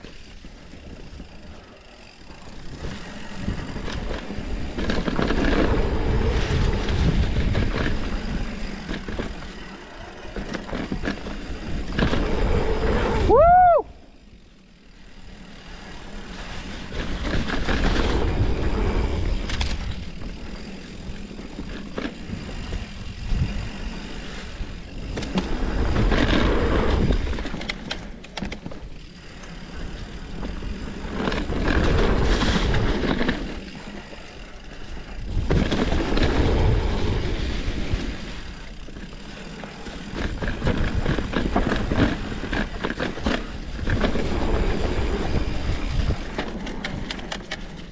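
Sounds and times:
bike clicks and rattles: 0.0s - 47.9s
wind buffeting microphone: 2.2s - 9.4s, 16.9s - 27.7s, 40.0s - 47.3s.

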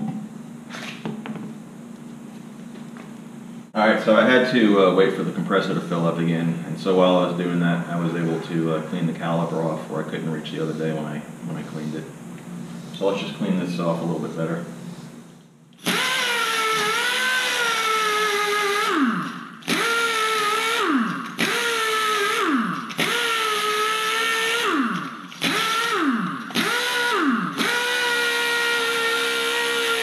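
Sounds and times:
pneumatic air tool whining: 15.8s - 30.0s.

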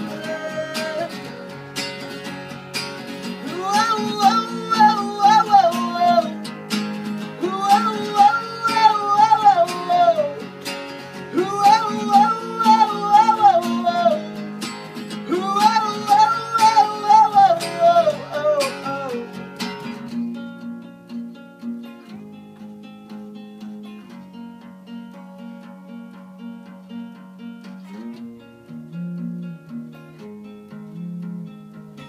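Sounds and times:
man singing: 0.0s - 1.7s, 3.4s - 6.6s, 7.2s - 10.6s, 11.2s - 19.4s
electric guitar: 0.0s - 32.0s
strummed acoustic guitar: 0.0s - 32.0s.

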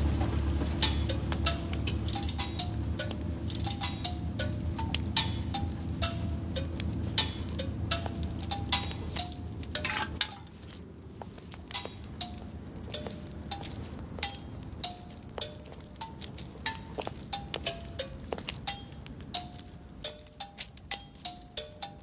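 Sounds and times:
low hum: 0.0s - 10.4s
sharp metallic clinks: 0.8s - 10.7s, 11.7s - 22.0s.

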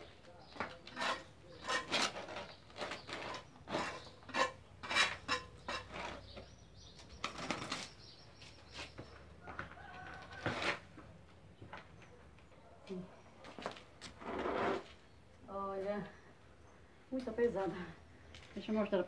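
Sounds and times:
hand tool scraping sand on concrete: 0.6s - 6.6s, 14.0s - 15.0s.

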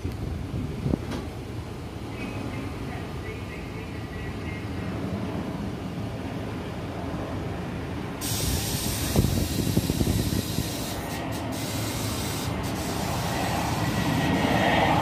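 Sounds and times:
train rumbling: 0.0s - 15.0s
compressed air hissing: 8.2s - 14.1s.

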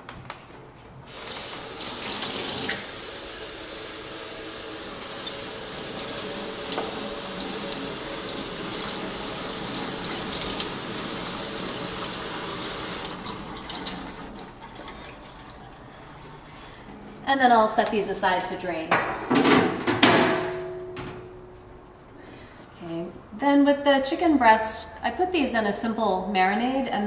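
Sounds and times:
tap water splashing: 5.2s - 7.0s.

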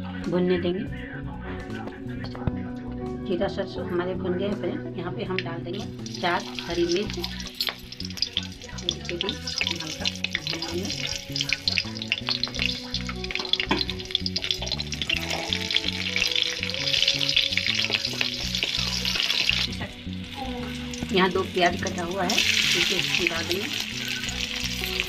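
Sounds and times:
chillies sizzling in hot oil: 5.8s - 25.0s.

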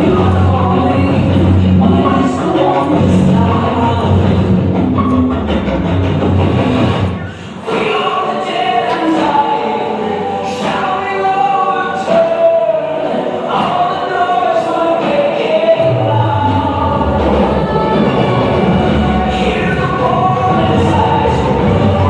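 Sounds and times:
choir-like singing: 0.0s - 5.6s, 6.6s - 22.0s
low bass: 2.9s - 7.2s.

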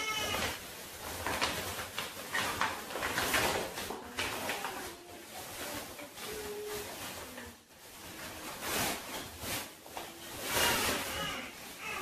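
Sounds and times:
fabric bag rustling: 0.0s - 12.0s
fabric swishes: 5.0s - 12.0s.

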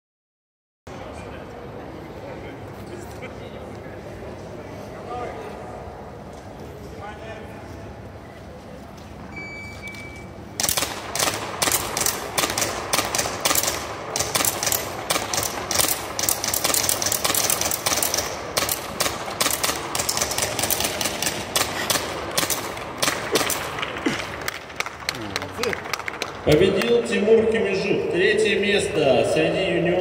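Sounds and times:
shot timer beep: 9.3s - 10.3s
pistol shots echoing: 10.6s - 24.5s.

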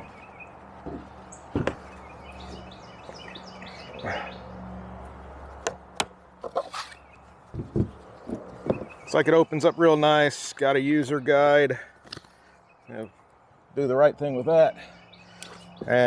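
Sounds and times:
solar panel knocking and clicking: 0.8s - 1.9s.

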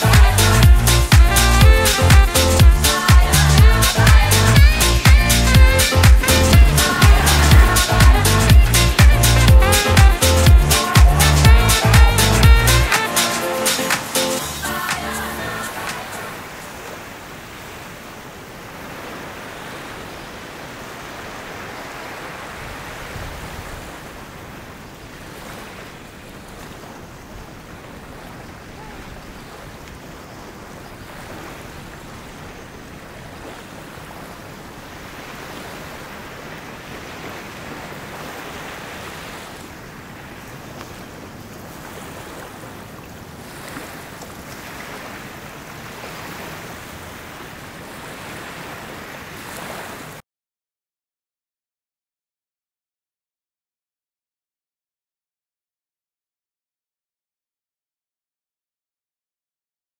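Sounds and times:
waves washing on shore: 0.0s - 50.2s.

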